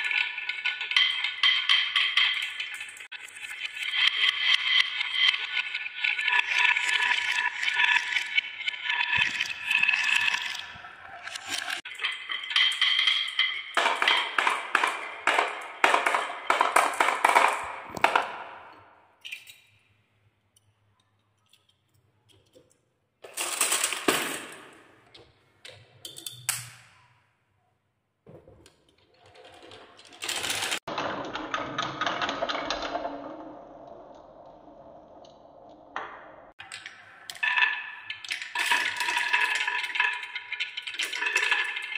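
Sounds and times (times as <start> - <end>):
toy car rattling on wooden track: 0.0 - 18.8, 23.2 - 24.8, 29.0 - 35.5, 36.5 - 41.9
marbles rolling on wooden tracks: 0.0 - 19.4, 23.2 - 26.5, 29.0 - 41.9.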